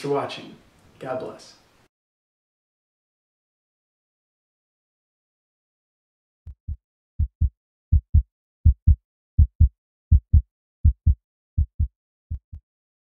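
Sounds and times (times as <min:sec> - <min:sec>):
heartbeat double thumps: 0:06.5 - 0:12.6.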